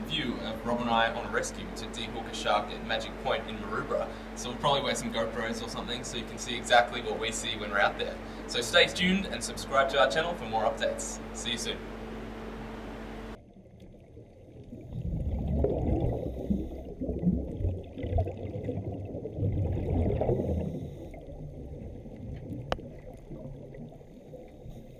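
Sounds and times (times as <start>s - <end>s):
room hum: 0.0s - 24.9s
gurgling underwater water: 13.4s - 24.9s.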